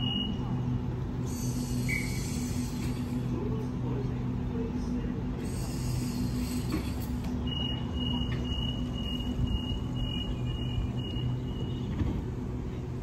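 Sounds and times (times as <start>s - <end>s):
train hum: 0.0s - 13.0s
high pulsing warning beeps: 7.4s - 12.0s.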